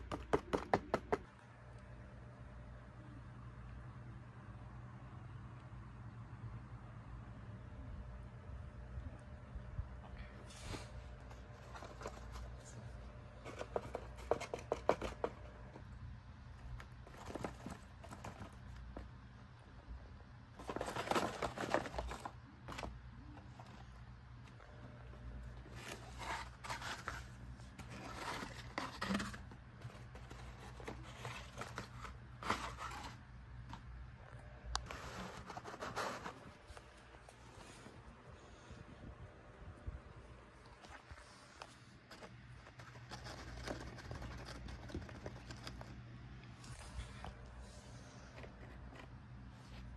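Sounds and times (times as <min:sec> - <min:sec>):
cardboard rustling and scraping: 0:10.4 - 0:19.4, 0:20.5 - 0:33.9, 0:34.8 - 0:38.0, 0:41.3 - 0:46.0, 0:46.6 - 0:49.9.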